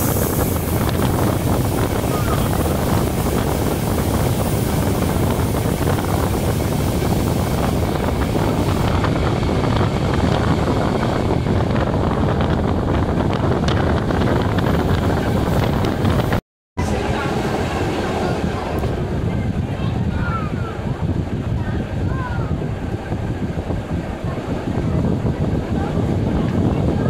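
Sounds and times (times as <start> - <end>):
electric train riding noise: 0.0 - 27.0
wind buffeting microphone: 0.0 - 27.0.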